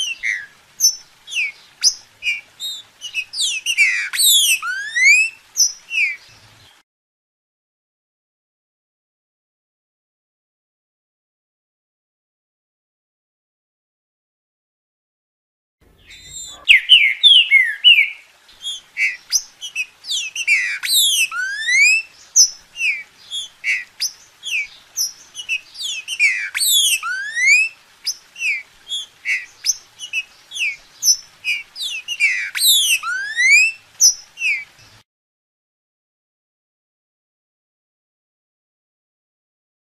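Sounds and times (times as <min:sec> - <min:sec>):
bird singing whistled notes: 0:00.0 - 0:06.6, 0:15.9 - 0:35.0.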